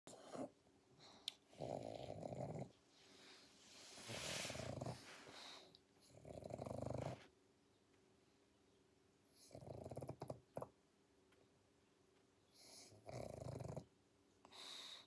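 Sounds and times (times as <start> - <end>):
dog snoring: 0.1 - 3.3, 4.0 - 7.3, 9.4 - 10.7, 12.6 - 13.9.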